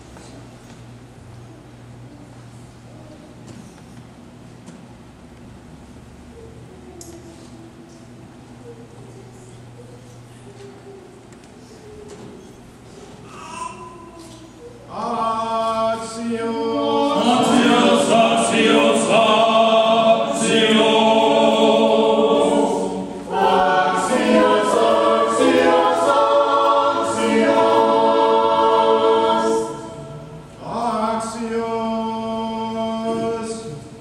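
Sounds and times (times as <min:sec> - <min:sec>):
choir chanting: 0:14.9 - 0:33.8.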